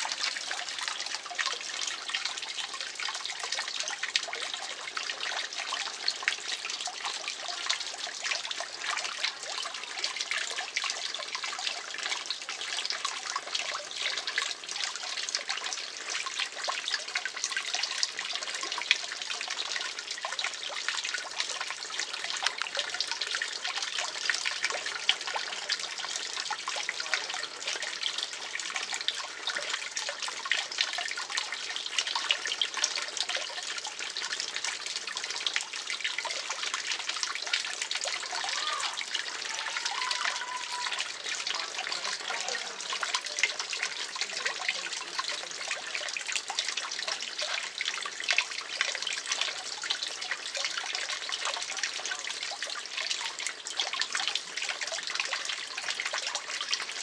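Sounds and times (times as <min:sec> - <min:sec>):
pond water trickling: 0:00.0 - 0:57.0
small water splashes: 0:00.0 - 0:57.0.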